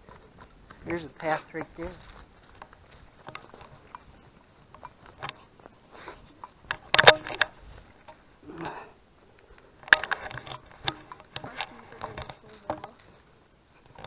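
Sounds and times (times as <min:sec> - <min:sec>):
footsteps crunching on trail: 0:00.0 - 0:08.5.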